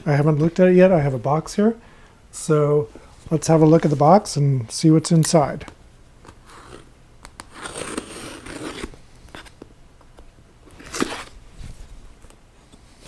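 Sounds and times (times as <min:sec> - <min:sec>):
tape ripping: 0:06.3 - 0:09.7, 0:10.7 - 0:11.4
knife slitting packing tape: 0:06.5 - 0:09.6, 0:10.7 - 0:11.4.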